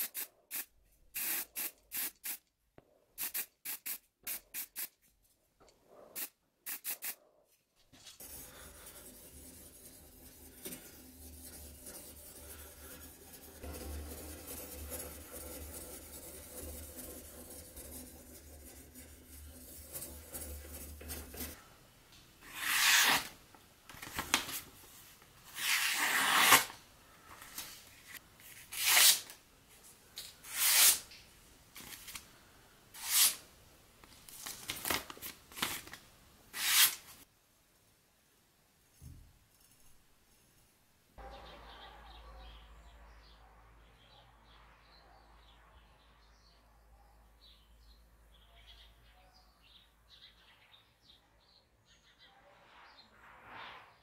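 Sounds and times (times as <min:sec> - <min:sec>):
sharpening stone rasping on knife: 0:22.5 - 0:23.3.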